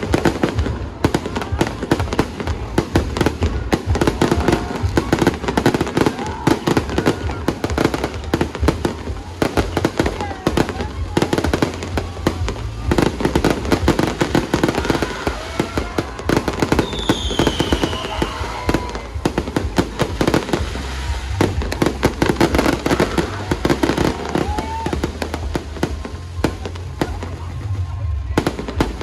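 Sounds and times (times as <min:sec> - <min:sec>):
fireworks bangs and crackles: 0:00.0 - 0:29.0
falling firework whistle: 0:14.7 - 0:19.2.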